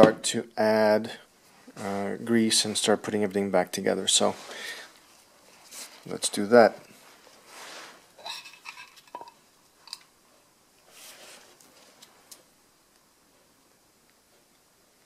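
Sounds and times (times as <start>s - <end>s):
soft rustling of gloved hands: 1.3s - 9.2s, 10.4s - 12.5s.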